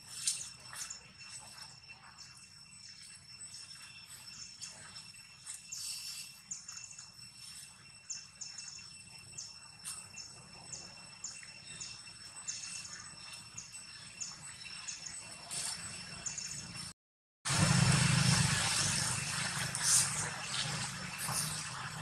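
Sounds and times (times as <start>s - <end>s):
high insect drone: 0.0s - 16.9s.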